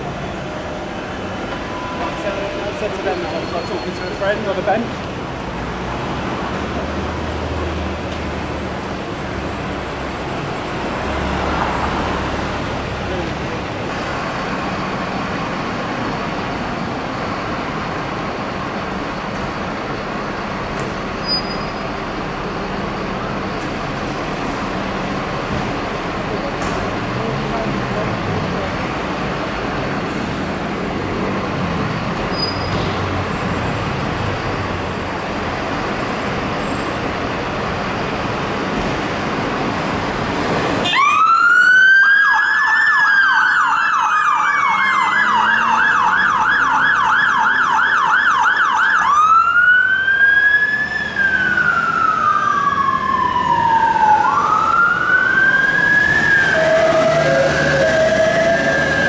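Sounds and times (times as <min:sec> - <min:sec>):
street traffic: 0:00.0 - 0:59.0
fire engine siren wailing: 0:40.8 - 0:59.0.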